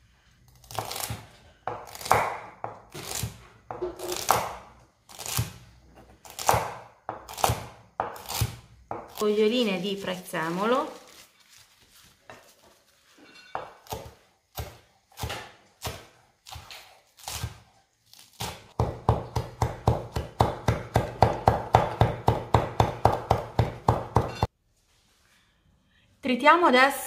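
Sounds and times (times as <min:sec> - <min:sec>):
knife chopping on wooden board: 0:00.7 - 0:09.2, 0:13.6 - 0:17.6, 0:18.4 - 0:24.5.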